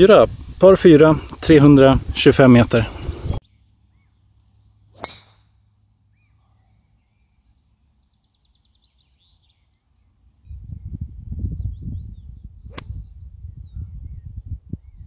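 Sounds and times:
birds chirping faintly: 0.0 - 15.0
golf club striking ball: 5.0 - 5.6.

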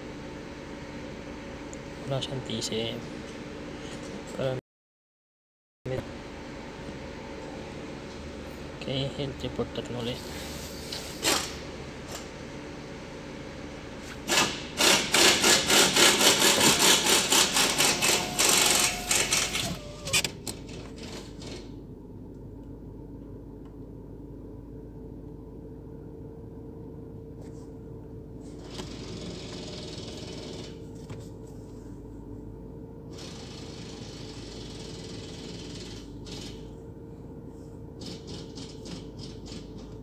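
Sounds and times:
steady low hum: 5.9 - 28.9, 30.6 - 40.0
rhythmic mechanical knocking: 14.8 - 19.8
faint held tone: 17.8 - 20.2.

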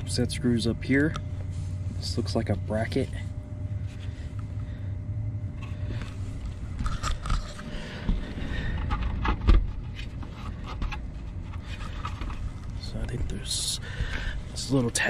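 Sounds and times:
steady low hum: 0.0 - 15.0
fan housing scraping and knocking: 6.8 - 14.2.

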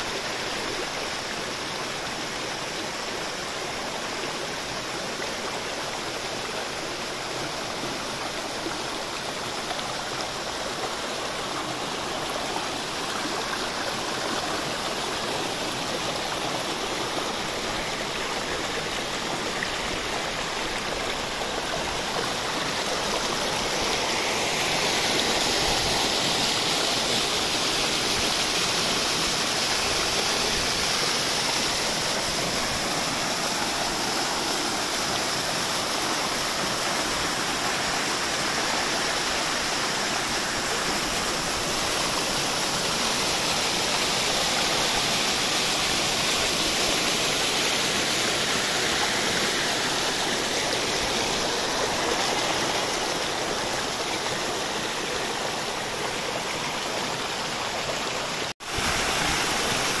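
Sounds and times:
stream running over stones: 0.0 - 60.0.

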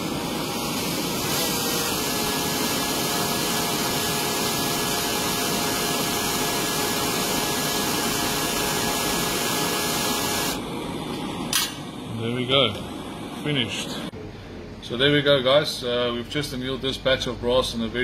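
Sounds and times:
torch flame hissing: 0.0 - 14.2
cordless drill running: 1.0 - 10.6.

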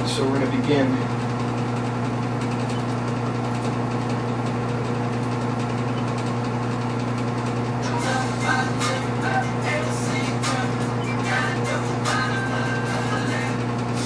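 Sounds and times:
low machine hum: 0.0 - 14.0
music: 7.8 - 14.0.

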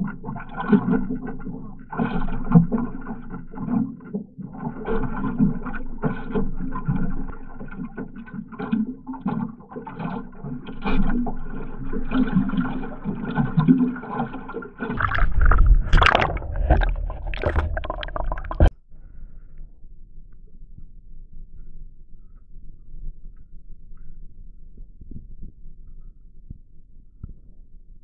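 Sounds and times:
water slapping against boat hull: 0.0 - 18.7
deep rumble: 15.0 - 18.7.

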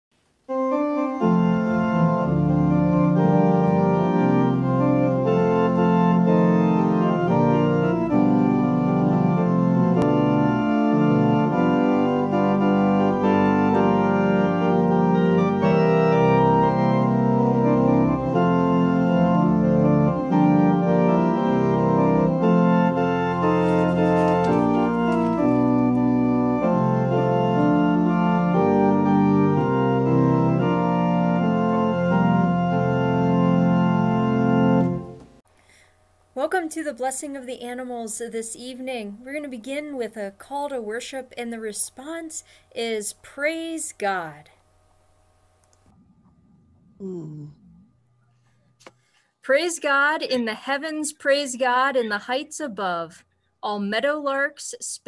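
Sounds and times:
organ playing sustained chords: 0.5 - 35.4.

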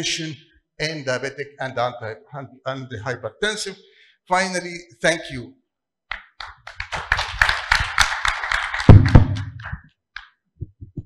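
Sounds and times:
audience applauding: 6.4 - 9.8.

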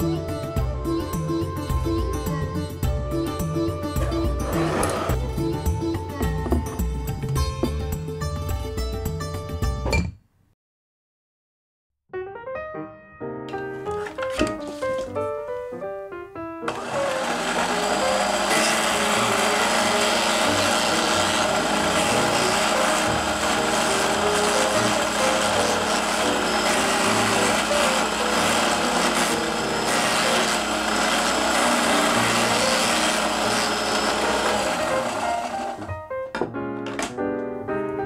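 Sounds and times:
motor whir: 4.4 - 5.2, 16.7 - 35.9
fast chopping rasp: 16.7 - 35.9.

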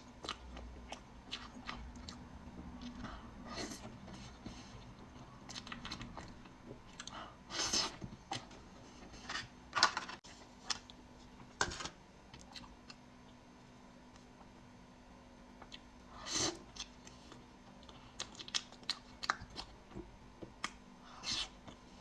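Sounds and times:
person chewing: 0.1 - 2.2, 4.7 - 7.2, 16.5 - 19.8.

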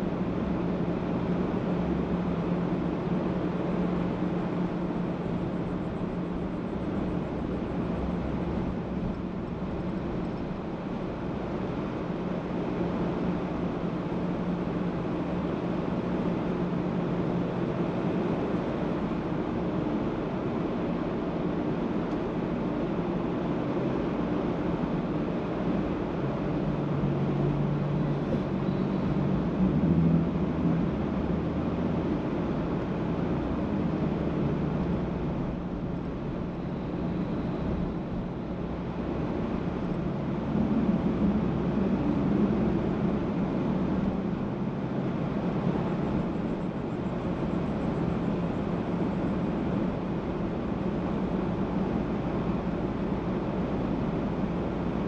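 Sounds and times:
road noise: 0.0 - 55.0
car engine hum: 24.1 - 55.0.

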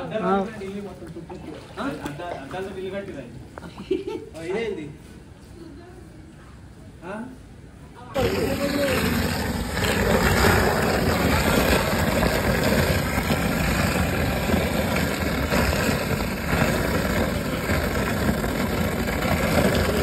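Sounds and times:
water gurgling down a drain: 8.2 - 20.0.

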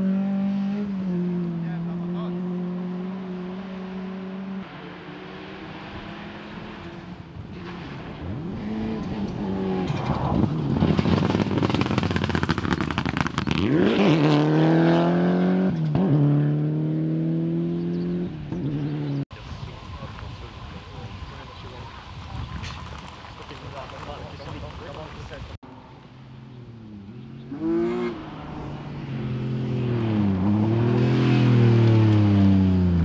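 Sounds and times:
rally car engine revving: 0.0 - 19.2, 26.6 - 33.0
gravel crackling under tyres: 6.0 - 14.3, 18.6 - 33.0.

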